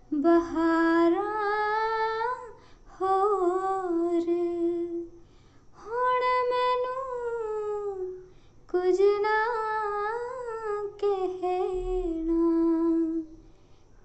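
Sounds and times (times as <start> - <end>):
woman singing unaccompanied: 0.0 - 5.2, 5.8 - 13.4
woman breathing: 2.5 - 2.9, 5.1 - 5.8, 8.2 - 8.7, 13.4 - 14.0.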